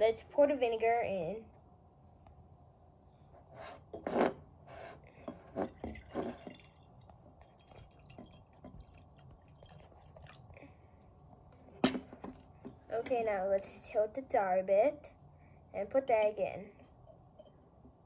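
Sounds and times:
liquid pouring into glass jar: 0:05.1 - 0:10.6.

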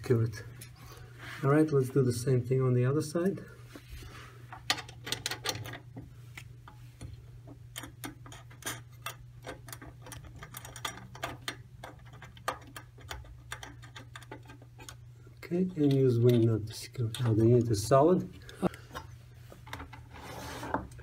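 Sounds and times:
small metallic clicks and taps: 0:07.7 - 0:15.0.

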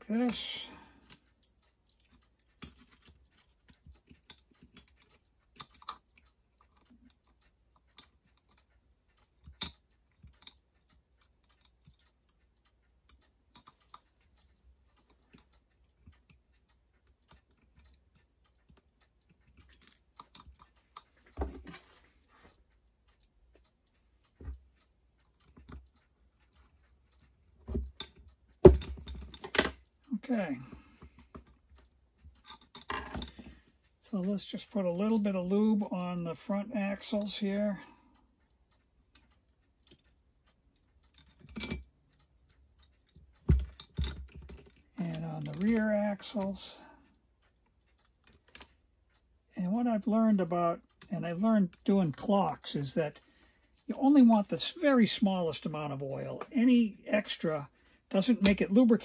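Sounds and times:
small metal parts clicking: 0:00.2 - 0:12.4, 0:13.1 - 0:22.5, 0:32.3 - 0:33.6, 0:41.0 - 0:42.2, 0:42.8 - 0:46.4.

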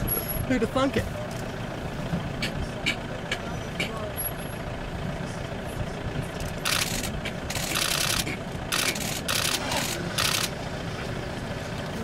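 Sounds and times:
vehicle engine idling: 0:00.0 - 0:12.0.

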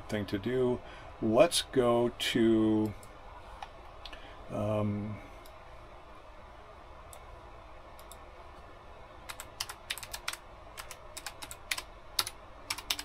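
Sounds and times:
typing on computer keyboard: 0:09.3 - 0:13.0.

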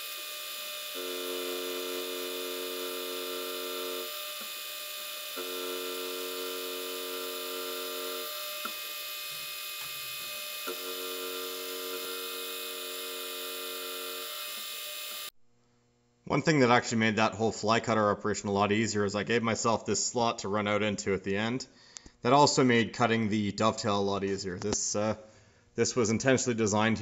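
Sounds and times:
milling machine motor hum: 0:00.0 - 0:15.3
pitched cutting drone: 0:00.0 - 0:15.3.

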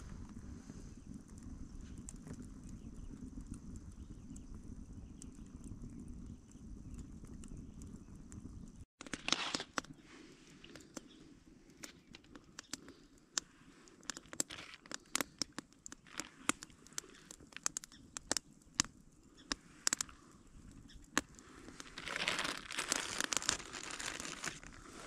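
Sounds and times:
campfire crackling and popping: 0:00.0 - 0:25.0
plastic bag crinkling: 0:09.0 - 0:09.8, 0:14.1 - 0:17.5, 0:21.7 - 0:25.0.

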